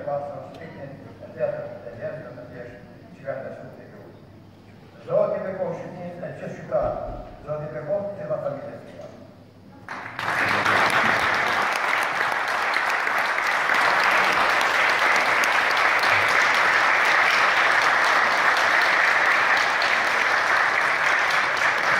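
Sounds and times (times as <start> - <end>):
audience applauding: 9.9 - 21.9.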